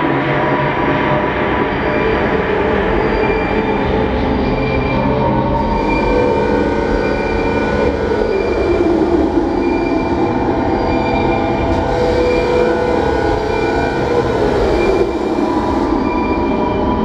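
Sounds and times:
industrial drone rumble: 0.0s - 17.0s
screeching metallic tones: 4.4s - 17.0s.

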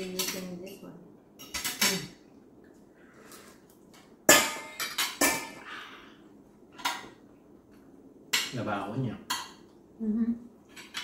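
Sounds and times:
cutlery clinking on plates: 0.0s - 2.2s, 4.3s - 5.6s, 10.7s - 11.0s.

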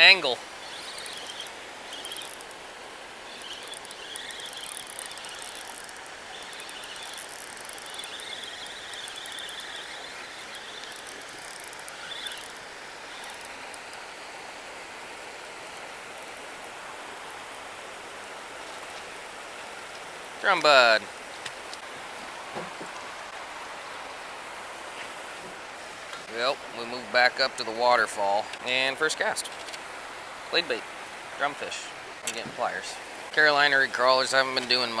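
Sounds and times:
river current rushing: 0.0s - 35.0s
wind: 0.0s - 35.0s
fishing reel whirring: 0.6s - 2.6s, 3.2s - 14.5s.

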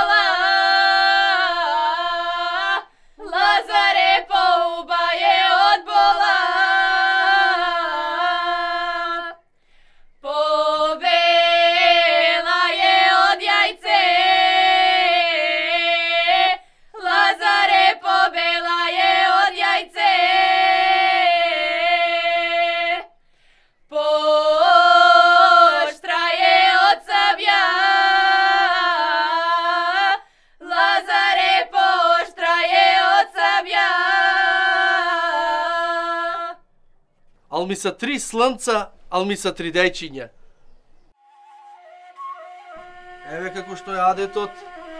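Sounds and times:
women singing unaccompanied: 0.0s - 9.5s, 10.2s - 23.2s, 23.8s - 36.7s.

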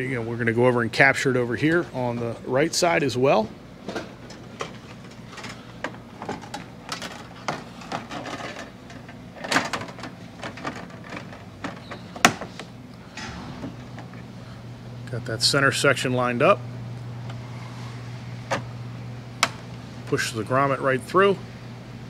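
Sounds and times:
steady low hum: 0.0s - 22.0s
handling clicks and knocks: 3.9s - 14.2s.

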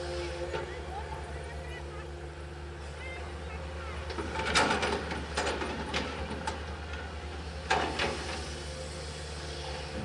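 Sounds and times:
excavator diesel engine running: 0.0s - 10.0s
metal clanks and knocks: 4.1s - 6.6s.

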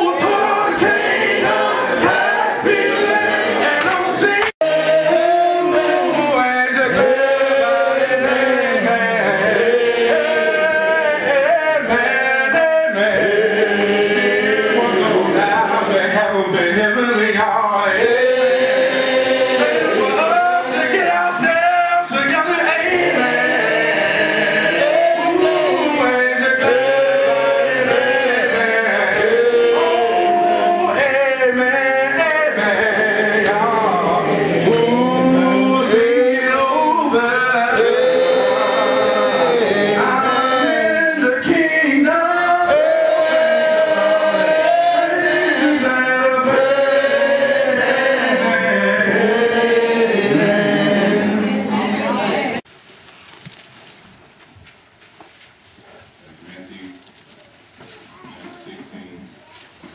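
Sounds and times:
congregation singing: 0.0s - 52.7s
man singing into a microphone: 3.7s - 23.8s, 24.5s - 51.1s.

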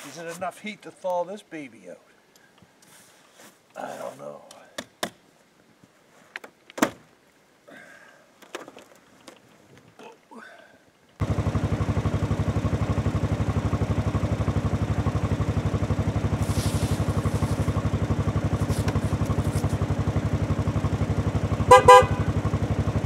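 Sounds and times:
pickup engine idling: 11.2s - 23.0s
car horn toots: 21.7s - 22.4s.

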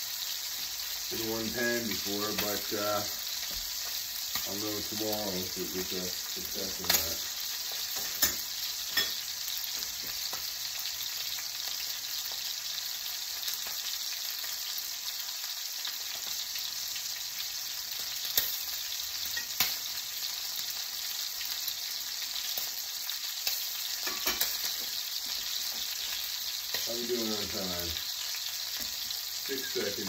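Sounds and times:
steak sizzling in a pan: 0.0s - 30.0s.

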